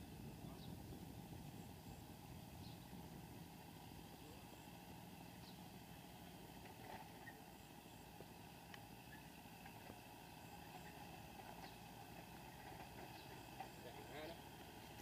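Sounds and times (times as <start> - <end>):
distant tractor engine hum: 0.0 - 15.0
faint ticks: 8.2 - 8.9.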